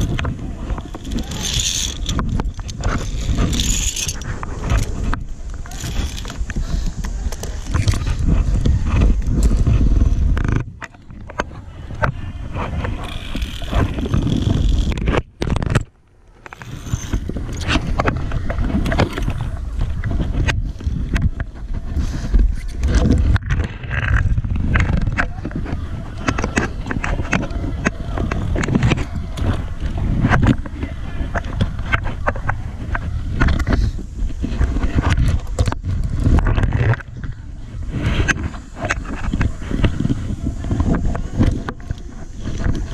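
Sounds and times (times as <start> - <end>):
trolley scraping on steel cable: 0.0 - 8.6, 12.4 - 15.0, 16.4 - 17.8
low air rumble: 0.0 - 42.9.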